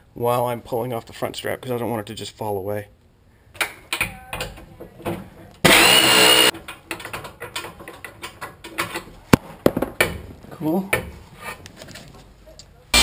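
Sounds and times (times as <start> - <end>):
small motor whirring: 5.7 - 6.5.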